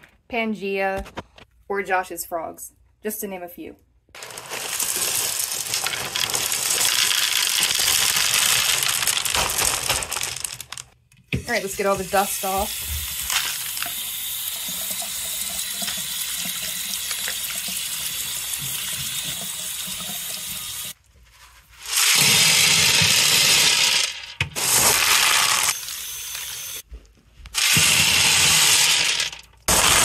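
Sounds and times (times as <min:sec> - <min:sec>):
clay pebbles rattling into tank: 0:04.2 - 0:11.0
tap water running over pebbles: 0:04.2 - 0:21.0.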